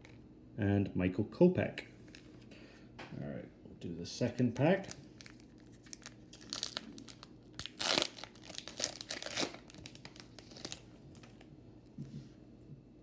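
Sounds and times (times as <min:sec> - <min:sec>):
foil wrapper tearing and crinkling: 0:04.3 - 0:11.5.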